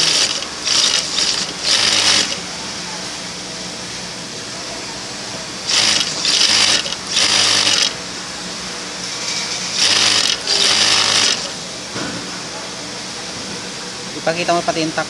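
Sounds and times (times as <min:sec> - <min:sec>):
sewing machine stitching: 0:00.0 - 0:02.4, 0:05.7 - 0:08.0, 0:09.8 - 0:11.5
sewing machine motor hum: 0:00.0 - 0:02.5, 0:05.7 - 0:08.0, 0:09.7 - 0:11.6.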